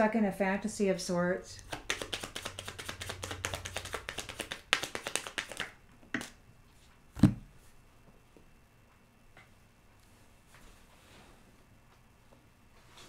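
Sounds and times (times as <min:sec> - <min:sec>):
cards being shuffled: 0:01.7 - 0:06.4.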